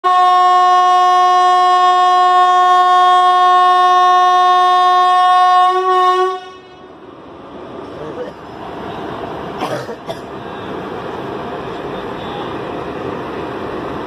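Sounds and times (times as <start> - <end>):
locomotive air horn blast: 0.0 - 6.9
train rolling rumble: 0.0 - 14.0.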